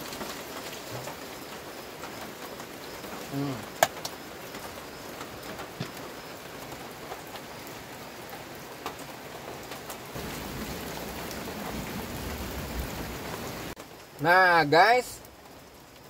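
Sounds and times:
heavy rain falling: 0.0 - 16.0.

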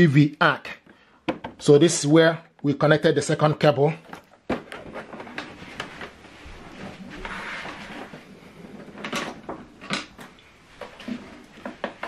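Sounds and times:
rustling: 4.0 - 12.0.

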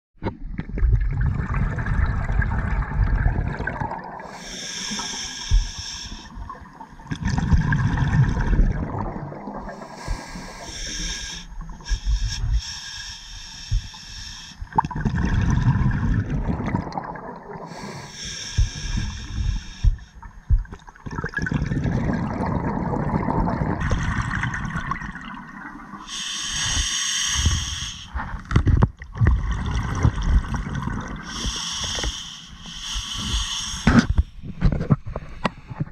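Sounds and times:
bubbling exhale underwater: 0.7 - 5.5, 6.6 - 12.6, 14.7 - 19.8, 21.0 - 26.8, 29.1 - 32.2
scuba regulator hissing inhale: 4.2 - 6.4, 9.7 - 14.7, 17.7 - 20.2, 26.0 - 28.2, 31.2 - 34.4.

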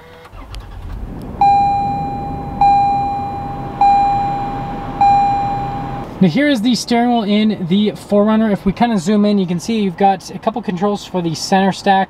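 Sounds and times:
car engine idling: 0.1 - 6.3
dashboard warning chimes: 1.4 - 6.1.

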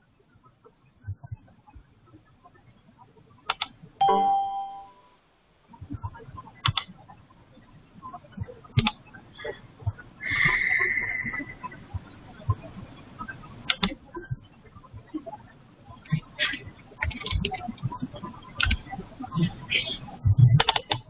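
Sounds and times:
computer mouse clicks: 3.4 - 3.8, 6.6 - 7.0, 8.7 - 9.0, 13.6 - 14.0, 17.0 - 19.0, 20.4 - 21.0
brief high-pitched sound: 4.0 - 5.0
electronic notification chime: 4.0 - 5.1.

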